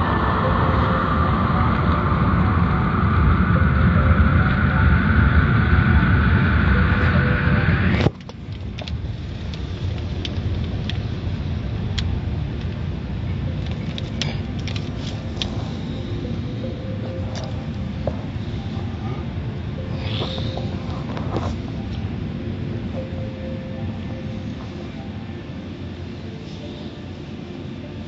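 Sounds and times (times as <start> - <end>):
car wash rumble: 0.0 - 28.0
loud rushing noise: 0.0 - 28.0.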